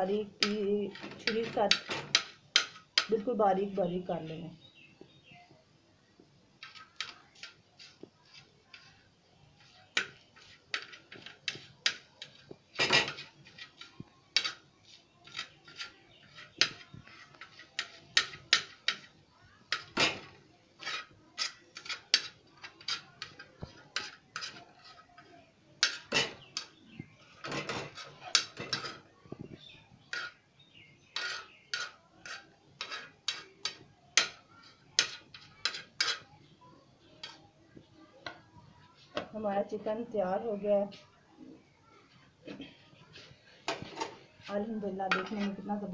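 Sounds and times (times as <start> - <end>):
knife striking a pan: 0.4 - 3.2, 9.9 - 14.6, 15.2 - 19.1, 19.7 - 25.0, 25.8 - 26.7, 31.2 - 34.4, 35.0 - 36.2, 45.1 - 45.6.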